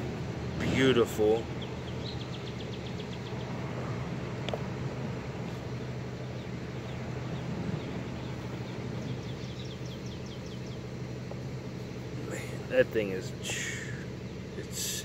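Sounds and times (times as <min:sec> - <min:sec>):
low mechanical hum: 0:00.0 - 0:15.0
bird trilling: 0:06.2 - 0:11.3.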